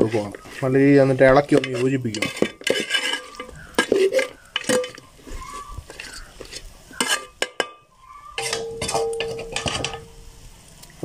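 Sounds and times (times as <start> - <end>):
metal ladle scraping pot: 0.0 - 10.3
ladle knocking pot: 1.5 - 5.0, 7.0 - 7.8, 8.4 - 10.1.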